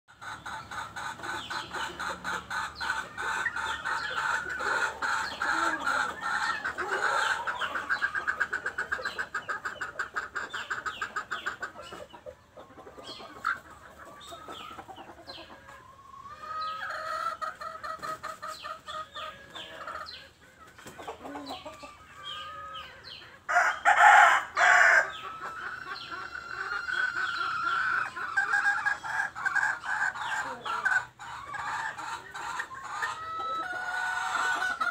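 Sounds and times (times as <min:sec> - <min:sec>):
ducklings peeping: 0:00.1 - 0:23.5, 0:25.1 - 0:34.9
chickens clucking: 0:00.1 - 0:34.9
rooster crowing: 0:23.5 - 0:25.1.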